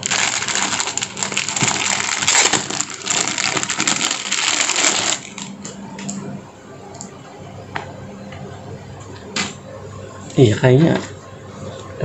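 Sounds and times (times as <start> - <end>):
plastic packaging crinkling: 0.0 - 5.7.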